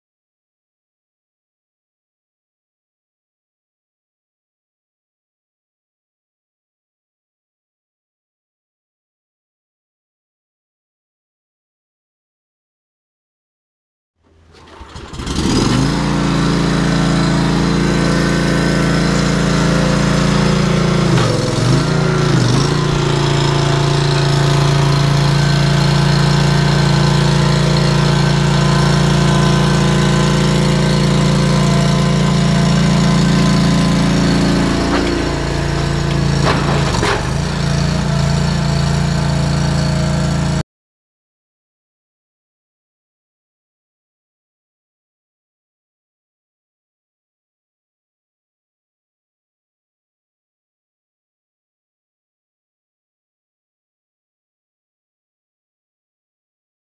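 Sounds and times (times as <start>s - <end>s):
digging machine engine running: 14.5s - 40.6s.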